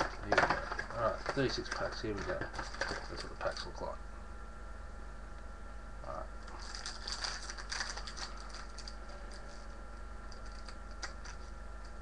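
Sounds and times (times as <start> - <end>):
card packs rustling and crinkling: 0.0 - 3.7, 6.5 - 9.7.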